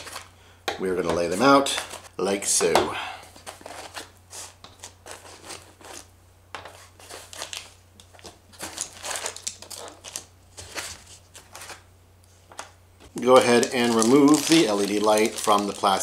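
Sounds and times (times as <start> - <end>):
plastic bags crinkling: 6.9 - 11.8, 13.1 - 16.0.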